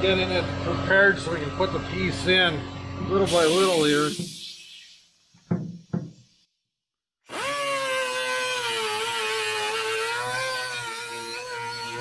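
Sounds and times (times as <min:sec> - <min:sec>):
pneumatic cut-off tool cutting metal: 0:03.2 - 0:04.8, 0:07.3 - 0:12.0.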